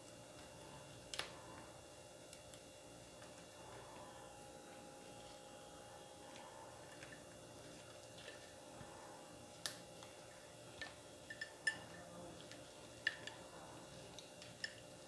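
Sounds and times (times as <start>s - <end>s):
leaf parcel clicks and crackles: 9.5s - 10.2s.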